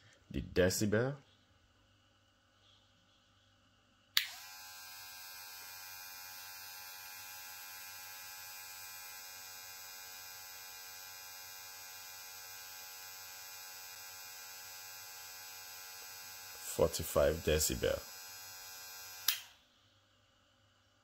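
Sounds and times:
hair clipper buzzing: 4.2s - 19.6s
hair clipper switch: 4.2s - 19.6s.

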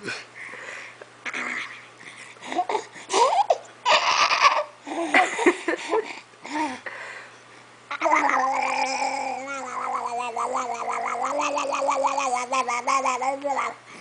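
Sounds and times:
baby laughing and squealing: 2.5s - 5.0s
baby shrieking: 3.4s - 4.7s.

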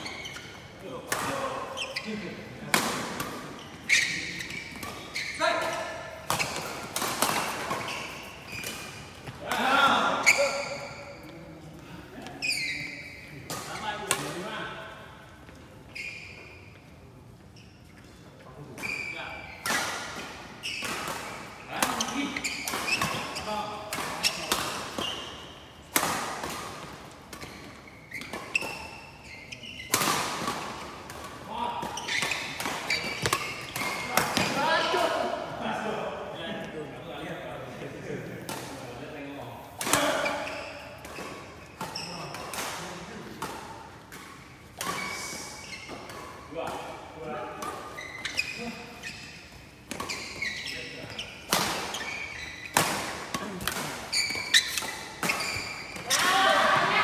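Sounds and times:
shoes squeaking on court floor: 0.0s - 35.4s, 38.6s - 57.0s
racket hitting shuttlecock: 2.6s - 11.0s, 29.8s - 35.1s, 49.1s - 57.0s.

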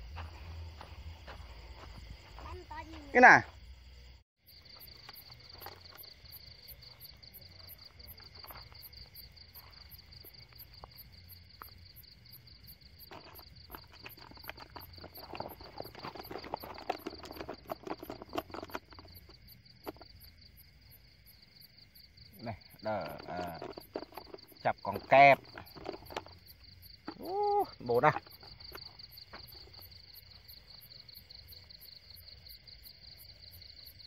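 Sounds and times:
crickets trilling: 0.0s - 34.0s
rustling and crackling handling: 13.0s - 20.1s, 23.0s - 27.2s.

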